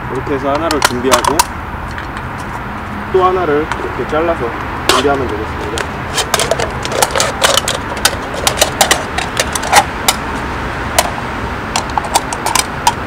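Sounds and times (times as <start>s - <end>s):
aluminium can being cut: 6.1s - 9.9s.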